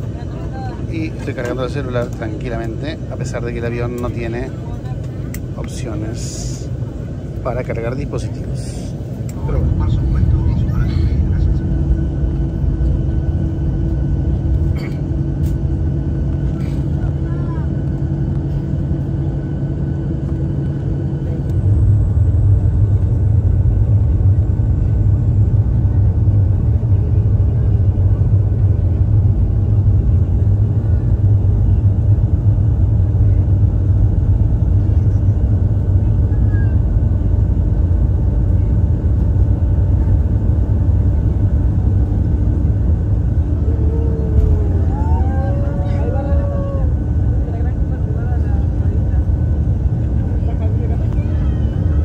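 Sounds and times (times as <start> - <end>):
jet engines and wheels rumbling: 0.0 - 52.0.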